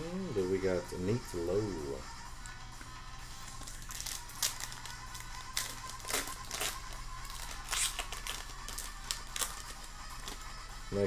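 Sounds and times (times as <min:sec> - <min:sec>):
wrapper crinkling and tearing: 0:03.5 - 0:10.5.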